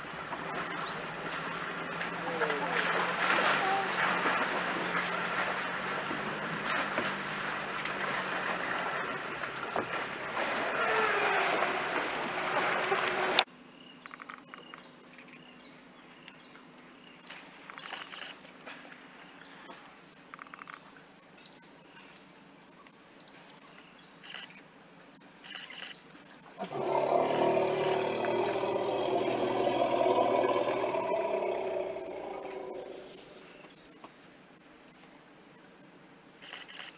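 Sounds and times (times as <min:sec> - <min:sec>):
insects droning: 0:00.0 - 0:36.9
elephants splashing through water: 0:00.4 - 0:13.5, 0:26.6 - 0:33.2
insect chirps and clicks: 0:13.9 - 0:15.5, 0:17.2 - 0:18.6, 0:20.0 - 0:21.6, 0:22.8 - 0:26.6, 0:36.3 - 0:36.9.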